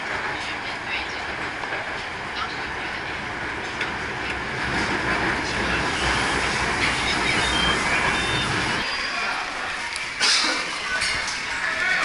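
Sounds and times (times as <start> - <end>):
track clatter: 0.0 - 8.8
train wheels rumbling on rails: 0.0 - 8.9
high wheel squeals: 5.5 - 9.5.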